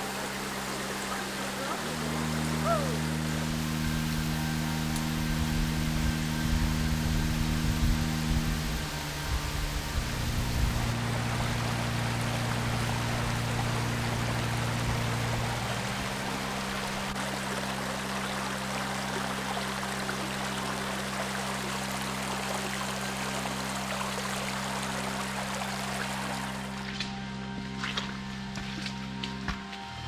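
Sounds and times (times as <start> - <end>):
soft background music: 0.0 - 30.0
brook running over stones: 8.8 - 27.0.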